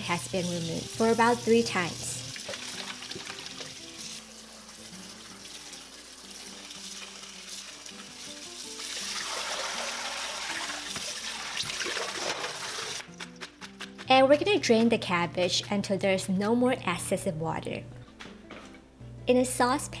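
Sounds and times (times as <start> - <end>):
water splashing into steel bowl: 1.8 - 4.3, 5.3 - 13.0.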